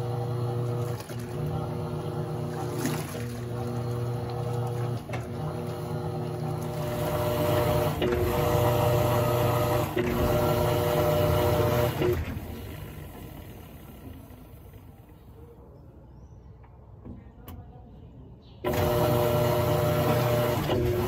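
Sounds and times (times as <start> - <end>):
water churning: 0.0 - 15.1
washing machine motor humming: 0.0 - 15.4, 18.6 - 21.0.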